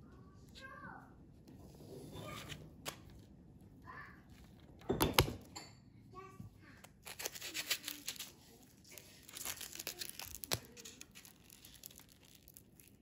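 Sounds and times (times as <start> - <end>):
plastic wrap crinkling and tearing: 6.8 - 13.0.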